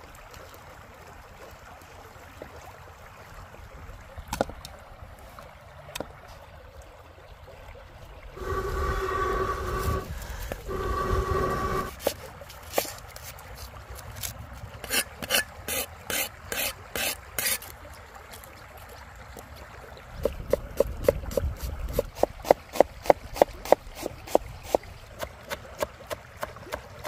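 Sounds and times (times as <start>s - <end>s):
knife rasping on cutting board: 14.8s - 17.6s.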